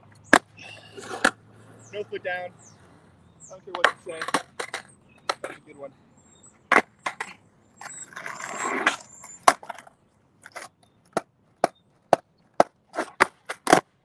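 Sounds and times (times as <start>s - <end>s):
skateboard rolling scrape: 0.8s - 1.8s, 7.1s - 10.7s, 12.9s - 13.8s.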